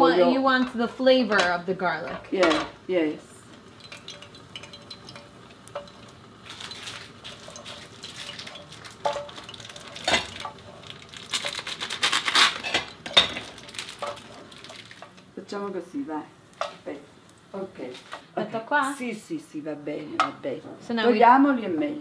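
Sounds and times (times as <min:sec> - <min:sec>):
garlic sizzling in oil: 0:00.0 - 0:22.0
pots and utensils clinking: 0:00.6 - 0:15.3
crinkly packet rustling: 0:06.4 - 0:15.2.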